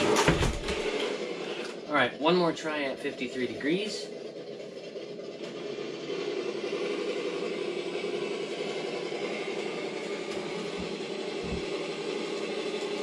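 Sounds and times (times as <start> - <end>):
electric motor whining: 2.9 - 13.0.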